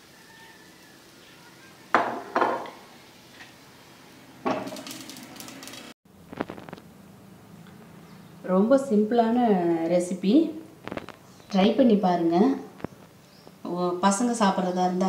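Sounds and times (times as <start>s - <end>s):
glass pan lid clanking on pan: 1.9s - 2.8s.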